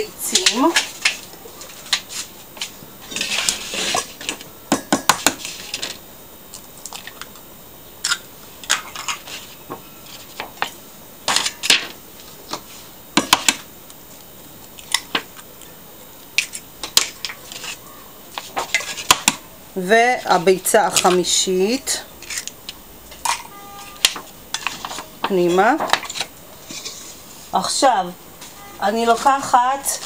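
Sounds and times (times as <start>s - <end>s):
eggshells cracking: 4.8s - 9.6s, 22.1s - 25.1s.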